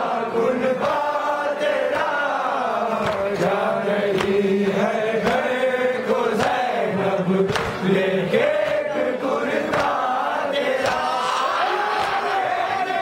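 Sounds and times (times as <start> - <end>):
men chanting a lament: 0.0 - 13.0
hands slapping on chests: 2.9 - 6.8, 7.4 - 7.9, 9.6 - 12.3.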